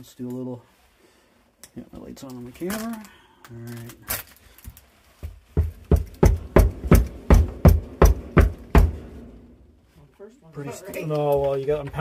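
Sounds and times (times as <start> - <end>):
pounding on wooden stair: 5.2 - 9.4.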